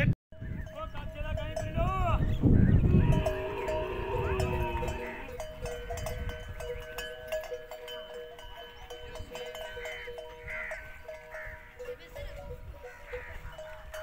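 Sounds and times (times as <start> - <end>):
camels bleating: 2.7 - 5.5.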